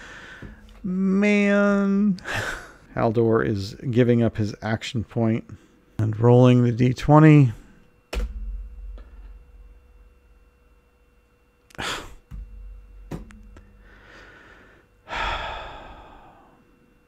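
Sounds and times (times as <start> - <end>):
man sighing: 11.7 - 12.2, 13.8 - 16.6.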